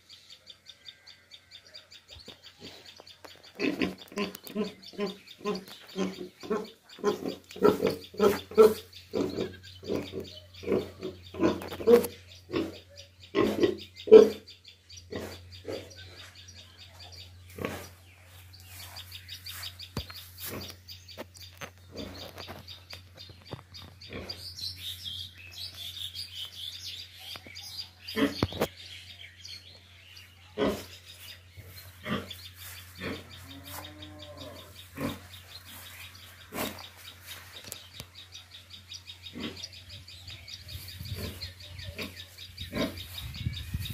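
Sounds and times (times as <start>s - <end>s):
birds chirping: 0.0s - 43.9s
pigs grunting: 3.6s - 14.5s, 15.1s - 16.1s, 17.5s - 18.0s, 28.1s - 28.4s, 30.6s - 31.0s, 32.0s - 32.4s, 33.0s - 35.4s, 39.3s - 39.8s, 41.1s - 43.1s.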